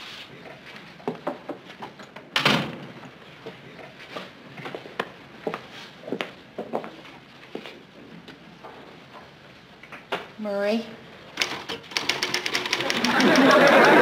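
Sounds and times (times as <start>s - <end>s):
footsteps on floor: 4.0s - 7.8s.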